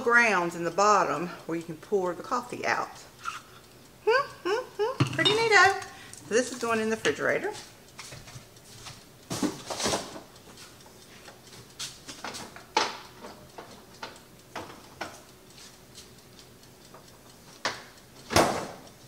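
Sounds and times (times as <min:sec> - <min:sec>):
containers knocking and clattering: 0:05.0 - 0:05.7.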